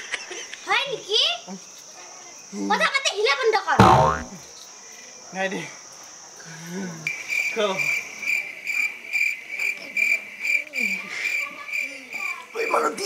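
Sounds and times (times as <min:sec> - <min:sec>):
crickets trilling: 0:11.2 - 0:12.7.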